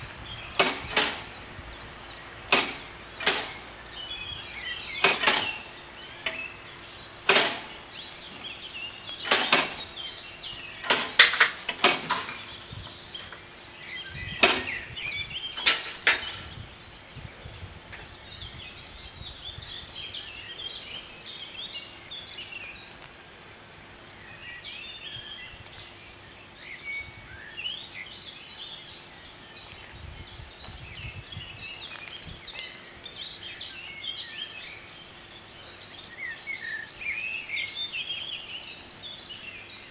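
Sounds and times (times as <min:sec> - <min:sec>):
birds chirping: 0:00.0 - 0:39.9
loud sharp noises: 0:00.5 - 0:01.6, 0:02.3 - 0:03.8, 0:04.9 - 0:06.5, 0:07.2 - 0:08.5, 0:09.2 - 0:10.0, 0:10.7 - 0:12.6, 0:14.4 - 0:14.9.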